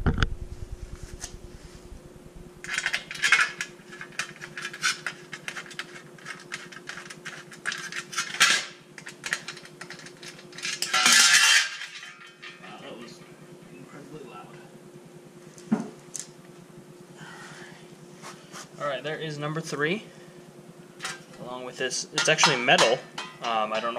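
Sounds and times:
faint steady hum: 0.0 - 23.9
metal cover clattering on concrete: 2.7 - 5.1, 7.6 - 10.0, 10.6 - 12.7, 21.0 - 21.4, 22.1 - 23.9.

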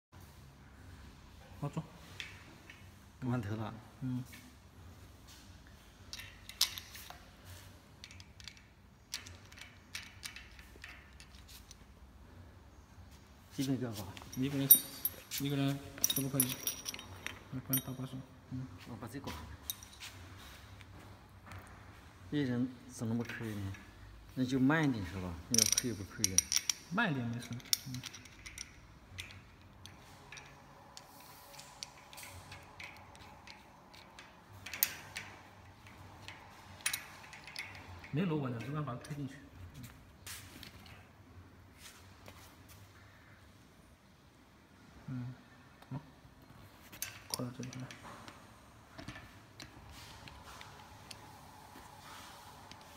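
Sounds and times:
small metal clicks and taps: 8.0 - 11.8, 25.6 - 39.2.

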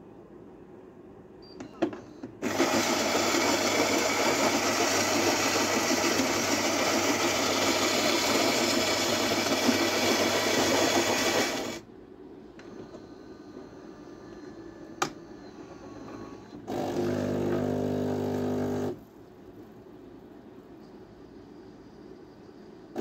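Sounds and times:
coffee grinder grinding beans: 2.4 - 11.8, 16.8 - 19.0.

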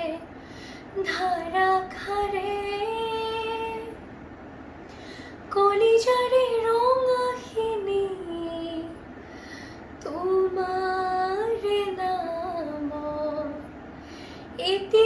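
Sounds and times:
breath: 0.3 - 0.9, 4.8 - 5.5, 9.2 - 10.0, 13.9 - 14.6
girl singing unaccompanied: 1.0 - 4.0, 10.0 - 13.6, 14.6 - 15.0.

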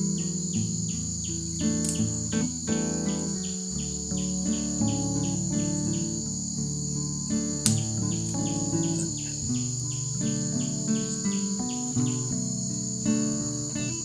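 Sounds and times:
high-pitched insect drone: 0.0 - 14.0
insect chirps: 0.0 - 14.0
soft instrumental music: 0.0 - 14.0.

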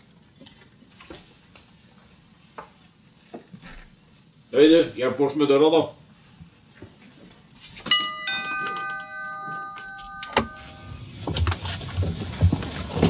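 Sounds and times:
doorbell chime: 7.9 - 11.4.

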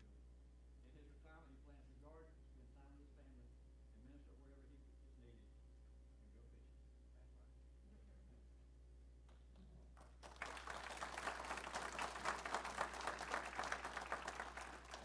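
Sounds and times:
audience applauding: 10.0 - 15.0.

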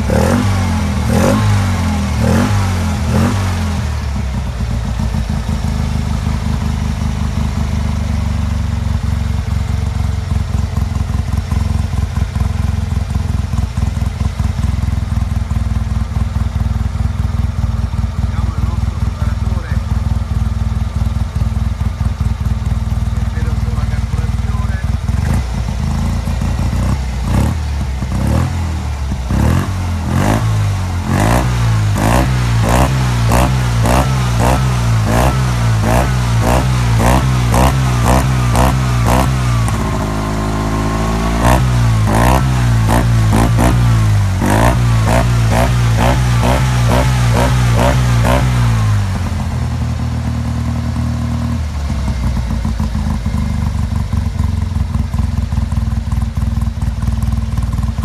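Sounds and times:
engine revving: 0.0 - 54.9
engine idling: 0.0 - 58.0.

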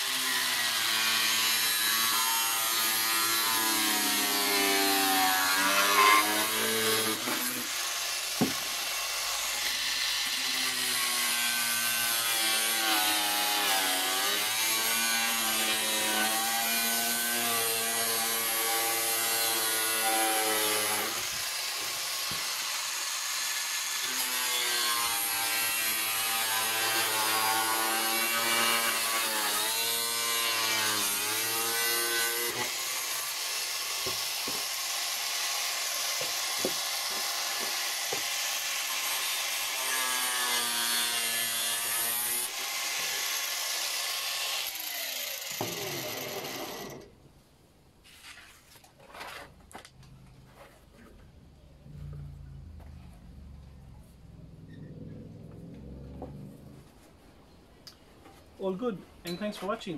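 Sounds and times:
angle grinder cutting plastic: 0.0 - 47.2.

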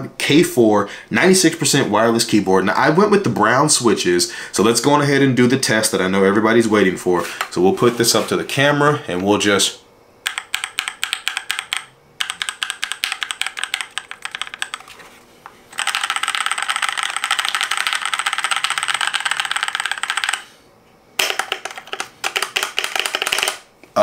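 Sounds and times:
mechanical keyboard typing: 10.2 - 14.9, 15.8 - 20.5, 21.2 - 23.6.

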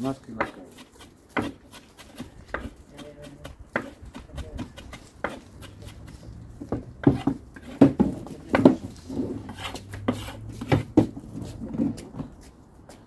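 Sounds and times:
knife chopping on wooden board: 0.4 - 8.8, 9.5 - 11.2.

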